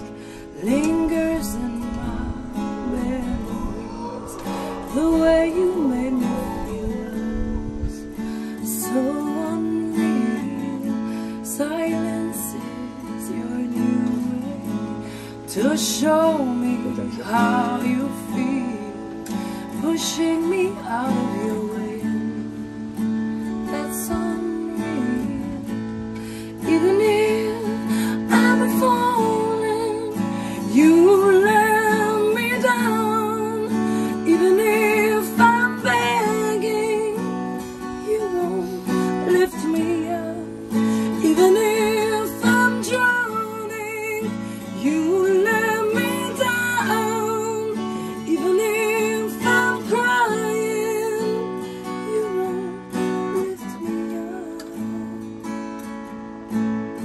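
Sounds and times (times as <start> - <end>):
woman singing: 0.0 - 55.9
acoustic guitar strumming: 0.0 - 57.0.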